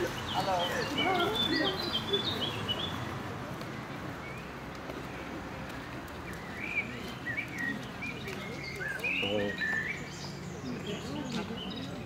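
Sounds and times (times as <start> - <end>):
bird chirping: 5.9 - 11.9.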